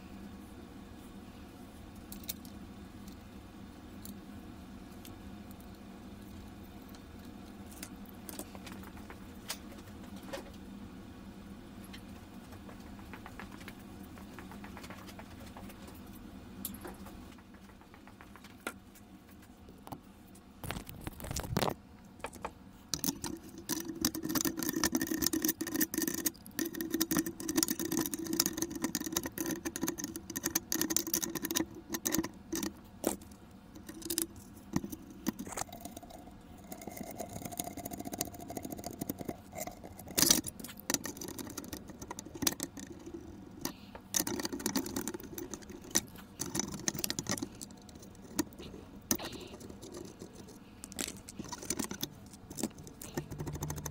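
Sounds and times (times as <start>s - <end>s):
metal parts clicking and rattling: 36.8s - 53.9s.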